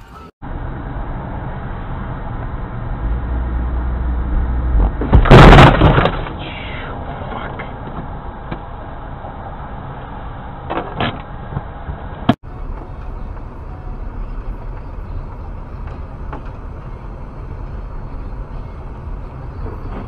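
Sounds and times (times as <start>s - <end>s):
road and engine noise: 0.0s - 20.0s
car crash: 4.7s - 6.8s.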